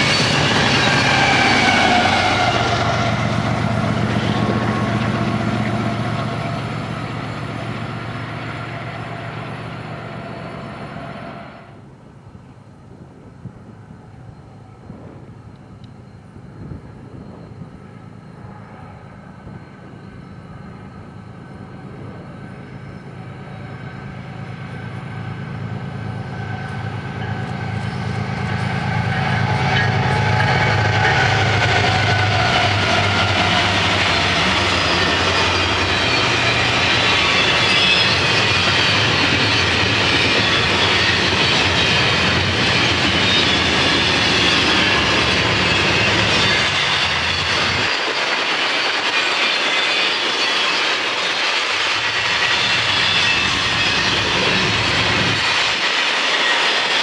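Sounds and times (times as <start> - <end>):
locomotive engine drone: 0.0 - 57.0
wheels clattering on rail: 19.4 - 57.0.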